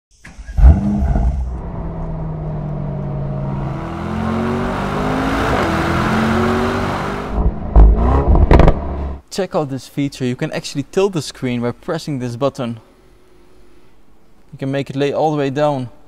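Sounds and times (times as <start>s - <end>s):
car engine revving: 0.4s - 9.2s.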